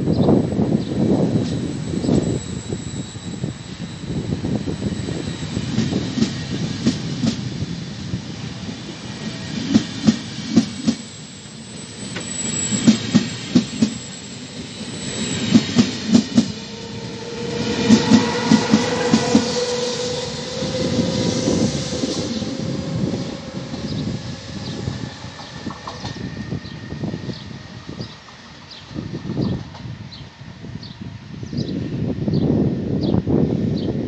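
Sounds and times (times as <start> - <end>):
electric locomotive whine: 0.0 - 34.0
train wheels clicking over rail joints: 4.2 - 7.5, 9.2 - 16.8, 23.7 - 26.4.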